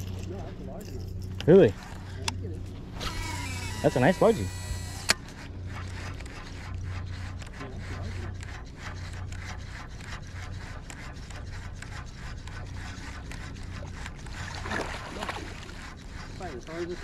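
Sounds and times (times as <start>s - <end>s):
boat low hum: 0.0s - 17.0s
ticking and rubbing: 3.0s - 14.6s, 15.4s - 17.0s.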